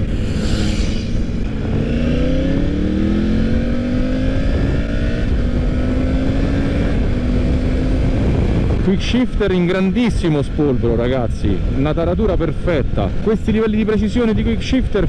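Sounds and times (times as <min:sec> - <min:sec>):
motorcycle engine accelerating: 0:00.0 - 0:08.8.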